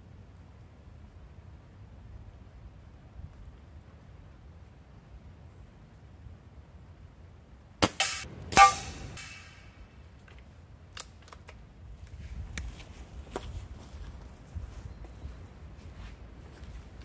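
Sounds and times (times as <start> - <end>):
rifle shots: 7.8 - 9.8.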